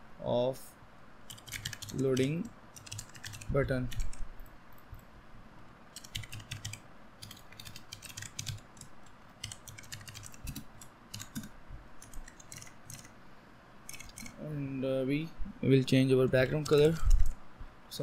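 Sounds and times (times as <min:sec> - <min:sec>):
typing on computer keyboard: 0:01.3 - 0:04.2, 0:05.9 - 0:13.1, 0:13.9 - 0:14.4.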